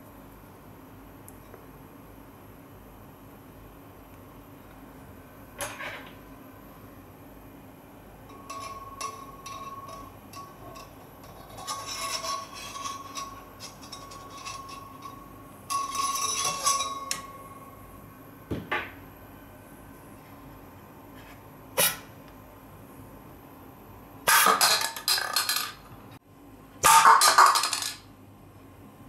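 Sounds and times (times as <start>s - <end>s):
faint steady whine: 0.0s - 26.9s
metal scraping in a barrel: 8.3s - 17.2s.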